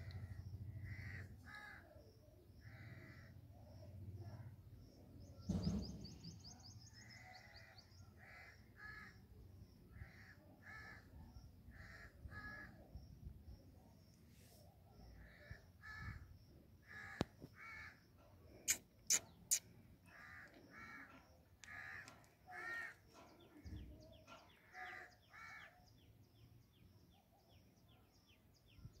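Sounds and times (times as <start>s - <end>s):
faint quick chirps: 18.5s - 19.8s.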